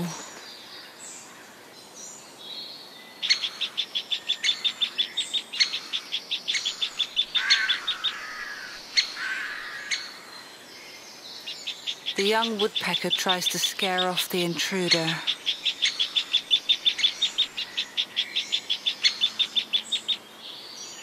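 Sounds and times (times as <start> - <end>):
lower rougher bird calls: 3.0 - 21.0
woodpecker calling high repeated notes: 3.2 - 10.5, 11.4 - 20.3.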